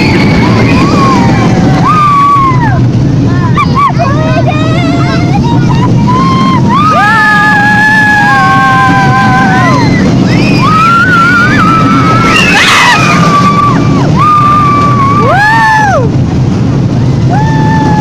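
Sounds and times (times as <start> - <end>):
riders screaming: 0.0 - 2.9, 5.9 - 16.1, 17.2 - 18.0
roller coaster rumble: 0.0 - 18.0.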